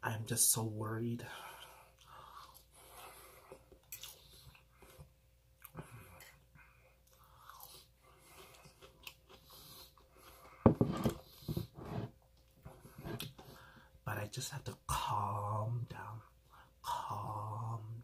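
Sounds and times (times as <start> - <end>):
close chewing with wet mouth sounds: 3.4 - 5.8, 6.4 - 10.6.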